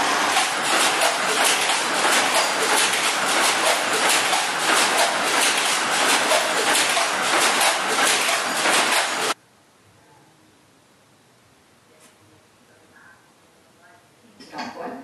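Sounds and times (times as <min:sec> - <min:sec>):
power looms clattering: 0:00.0 - 0:09.4.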